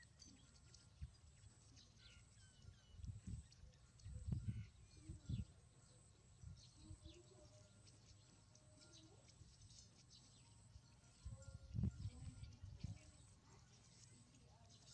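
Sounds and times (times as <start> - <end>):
animal chirps and squeaks: 0.0 - 5.6.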